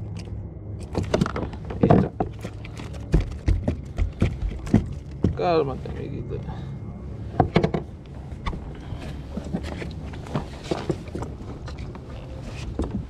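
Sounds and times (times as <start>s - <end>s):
knocks and thuds on plastic hull: 1.0s - 5.4s.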